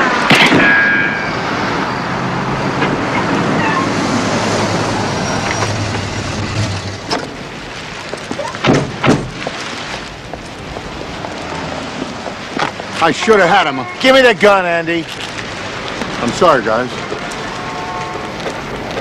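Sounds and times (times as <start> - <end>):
loud sharp bangs: 0.0 - 1.8
car engine: 0.0 - 8.1
street traffic: 0.0 - 19.0
car tyres squealing: 0.8 - 7.5.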